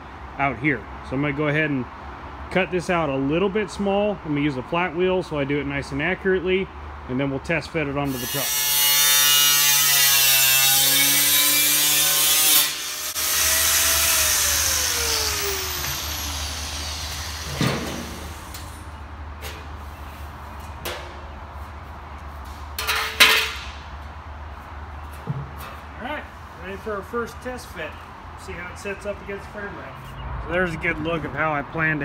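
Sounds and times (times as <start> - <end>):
angle grinder cutting steel: 8.1 - 18.7.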